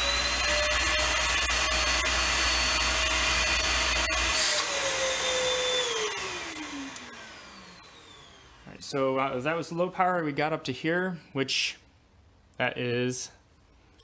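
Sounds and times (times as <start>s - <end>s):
vacuum motor whine: 0.0s - 9.0s.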